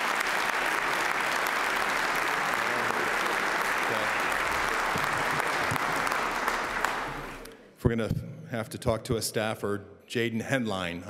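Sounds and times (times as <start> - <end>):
crowd applauding: 0.0 - 7.5.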